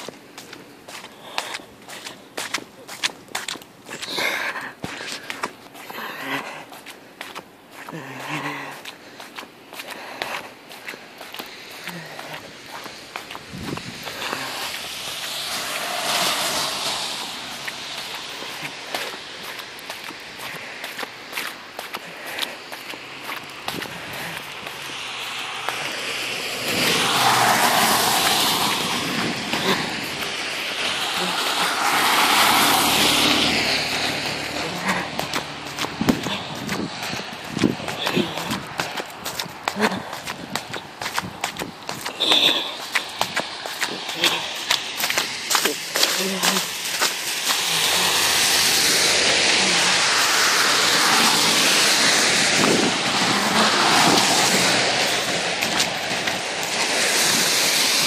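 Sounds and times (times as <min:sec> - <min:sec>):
tyres hissing on wet pavement: 0:00.0 - 0:58.0.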